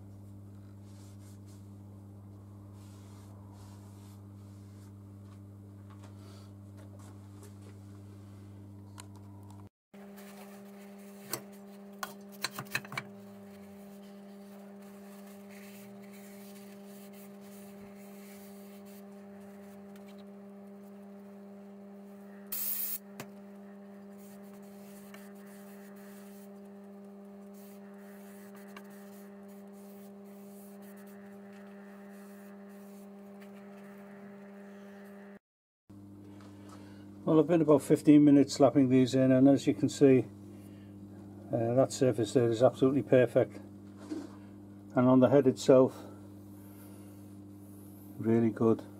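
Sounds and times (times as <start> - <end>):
electrical mains hum: 0.0 - 48.9
short hiss: 22.6 - 23.0.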